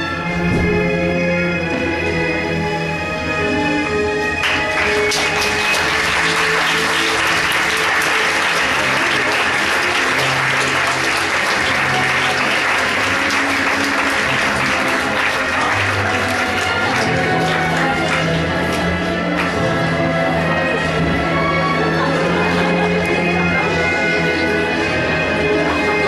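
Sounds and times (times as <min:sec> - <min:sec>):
recorded music: 0:00.0 - 0:26.0
audience applauding: 0:04.4 - 0:19.7.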